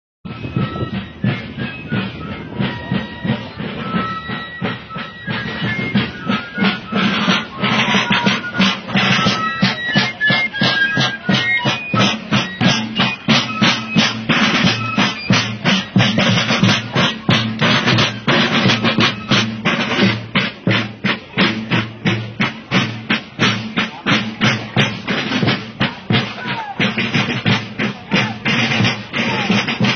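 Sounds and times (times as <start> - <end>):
drum beats: 0.2 - 29.9
shrill fife tune: 0.3 - 20.1.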